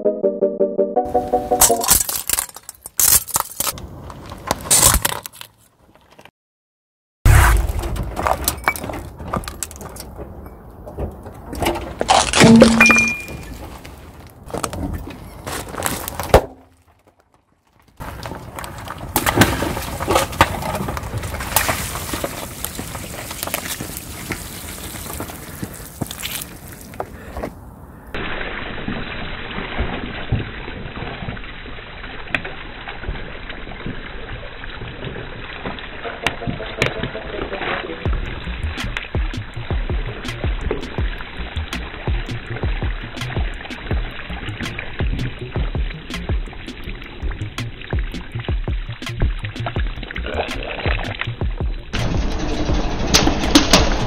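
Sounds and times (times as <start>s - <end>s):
ceramic bowls crunching: 1.6s - 6.2s, 12.0s - 17.2s, 18.0s - 27.3s
water balloons bursting: 12.0s - 13.6s
ceramic piece ringing: 12.4s - 13.5s.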